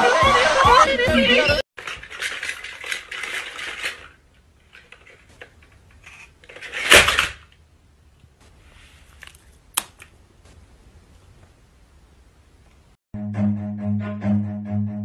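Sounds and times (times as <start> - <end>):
toy motor rattling and clicking: 1.8 - 5.2.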